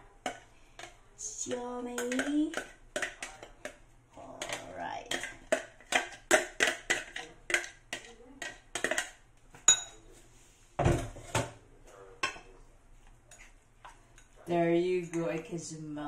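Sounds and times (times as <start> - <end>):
spoon clinking on ceramic bowl: 9.7 - 10.0.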